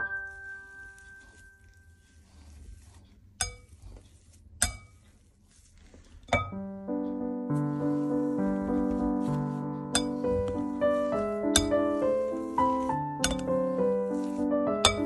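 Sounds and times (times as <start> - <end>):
piano music: 0.0 - 2.0, 6.4 - 15.0.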